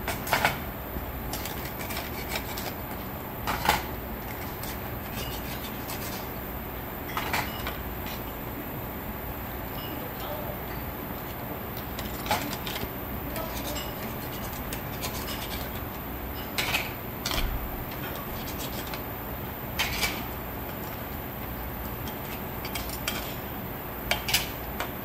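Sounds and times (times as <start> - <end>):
metal tongs clinking on a pot: 11.7 - 14.2.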